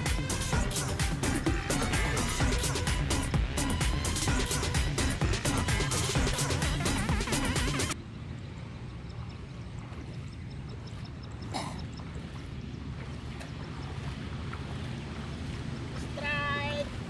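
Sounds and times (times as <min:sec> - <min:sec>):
person wading through water: 0:07.9 - 0:17.0
water splash: 0:11.4 - 0:17.0.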